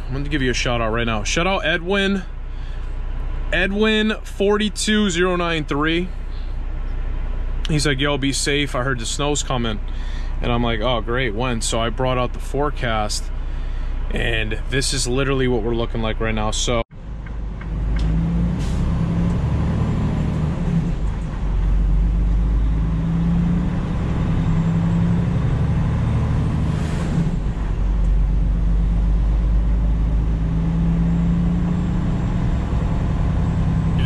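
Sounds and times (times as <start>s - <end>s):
truck engine and road noise: 0.0s - 34.0s
passing vehicle rush: 17.0s - 34.0s.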